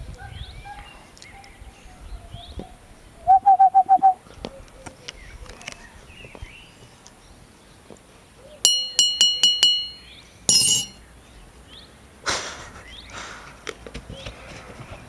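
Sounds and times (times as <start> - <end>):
small bell ringing: 8.6 - 11.0.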